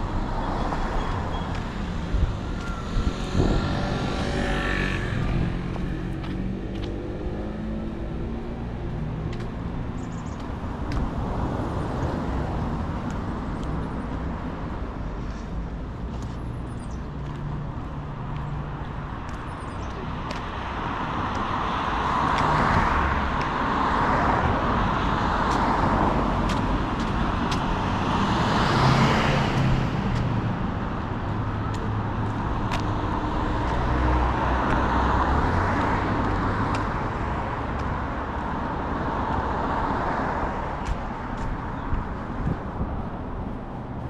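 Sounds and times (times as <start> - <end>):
cars driving past: 0.0 - 44.0.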